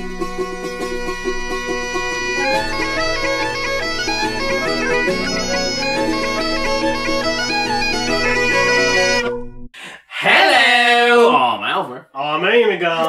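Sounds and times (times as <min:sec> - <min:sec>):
bagpipe music: 0:00.0 - 0:09.6.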